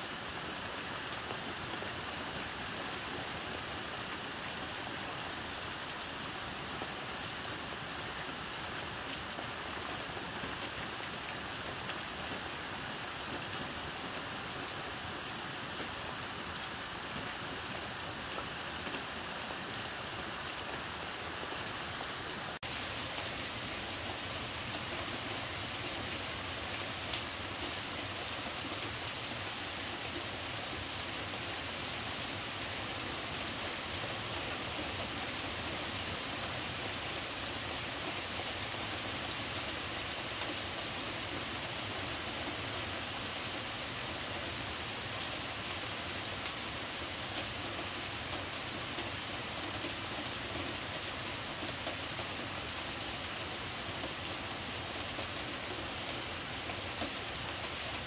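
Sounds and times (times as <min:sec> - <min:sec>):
heavy rain on a roof: 0:00.0 - 0:58.0.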